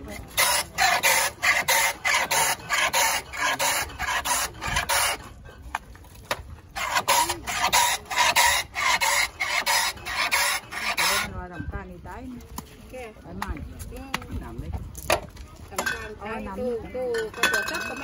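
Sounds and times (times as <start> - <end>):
ice scraped on shaver blade: 0.0 - 5.4, 6.7 - 11.3.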